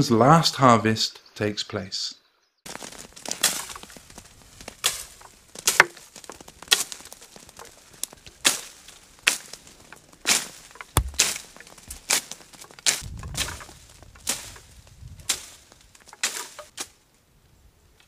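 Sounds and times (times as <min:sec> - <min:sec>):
poles beating tree branches: 0:02.7 - 0:16.9.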